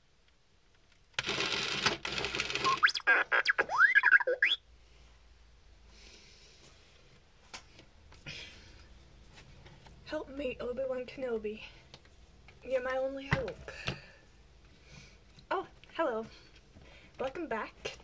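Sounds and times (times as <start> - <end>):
electronic chirps and whistles: 2.6 - 4.6.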